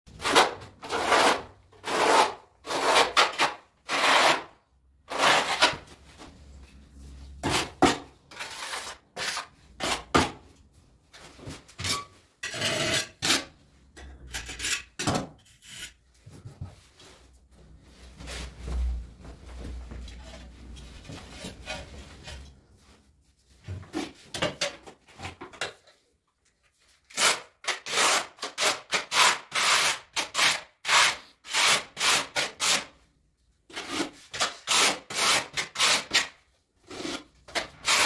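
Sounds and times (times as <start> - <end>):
trowel scraping adhesive on wall: 0.1 - 5.8, 7.4 - 10.4, 14.3 - 16.0, 27.1 - 33.0, 33.7 - 38.0.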